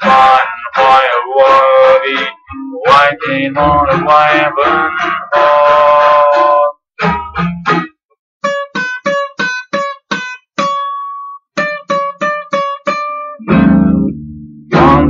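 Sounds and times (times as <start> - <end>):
plucked string instrument country music: 0.0 - 15.0
bass: 2.5 - 4.2, 13.4 - 15.0.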